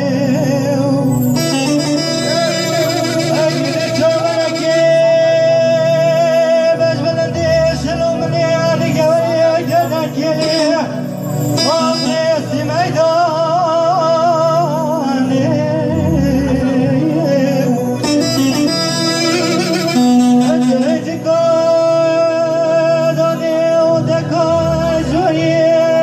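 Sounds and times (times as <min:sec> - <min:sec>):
amplified backing music: 0:00.0 - 0:26.0
man singing into microphone: 0:00.0 - 0:26.0.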